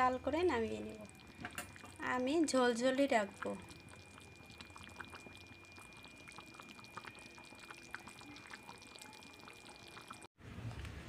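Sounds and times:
curry bubbles popping: 0:00.4 - 0:10.3.

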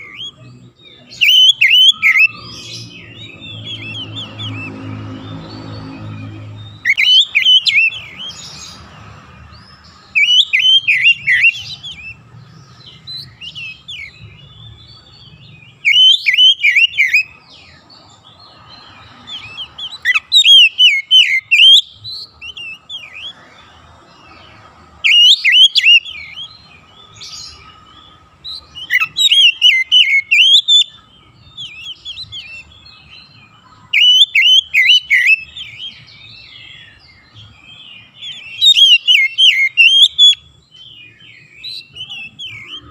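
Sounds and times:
bird singing whistled phrases: 0:00.0 - 0:04.9, 0:06.0 - 0:08.4, 0:10.1 - 0:12.2, 0:15.8 - 0:17.4, 0:19.3 - 0:23.4, 0:25.0 - 0:26.6, 0:28.4 - 0:33.1, 0:33.7 - 0:37.1, 0:37.7 - 0:42.9.

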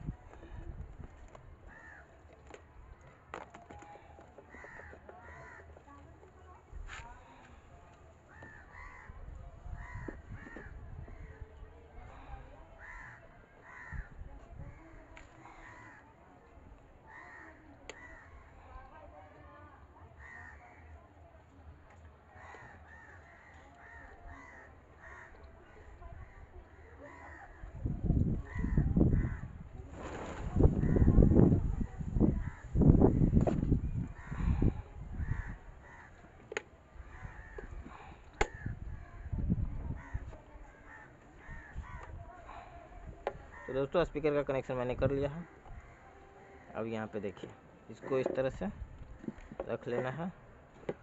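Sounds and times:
crows cawing: 0:01.7 - 0:02.1, 0:04.4 - 0:05.9, 0:08.3 - 0:11.4, 0:12.8 - 0:14.2, 0:15.4 - 0:16.1, 0:17.1 - 0:18.5, 0:20.2 - 0:20.9, 0:22.4 - 0:27.8, 0:28.5 - 0:29.5, 0:30.8 - 0:31.2, 0:32.4 - 0:33.4, 0:34.2 - 0:36.2, 0:37.0 - 0:39.3, 0:39.9 - 0:42.6, 0:43.2 - 0:43.8, 0:45.7 - 0:46.7.

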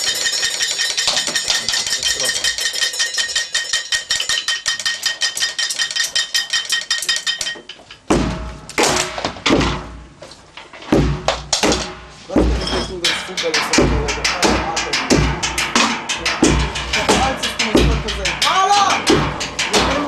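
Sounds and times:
fast metallic tapping: 0:00.0 - 0:09.8, 0:10.6 - 0:20.0
heavy thuds and clatters: 0:07.6 - 0:20.0.

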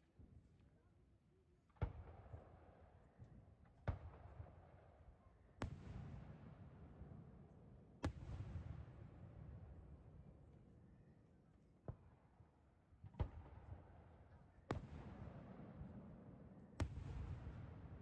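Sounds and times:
firework booms with rolling rumble: 0:16.8 - 0:18.0.

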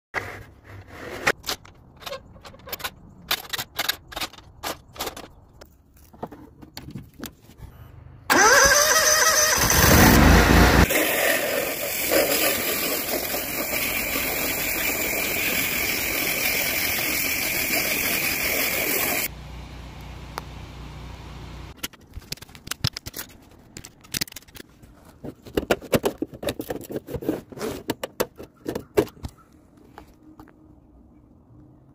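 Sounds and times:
pressure washer spraying shingles: 0:08.3 - 0:19.3
low hum: 0:19.3 - 0:21.8.

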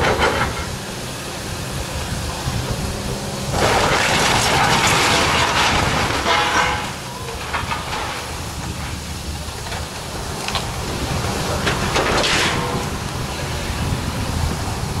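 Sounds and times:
diesel excavator engine running: 0:00.0 - 0:15.0
rubble crashing and scraping: 0:03.5 - 0:13.0.

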